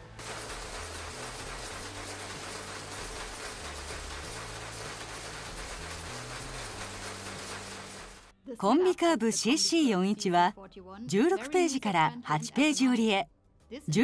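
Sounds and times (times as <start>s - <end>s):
paper folding machine clatter: 0.0s - 8.3s.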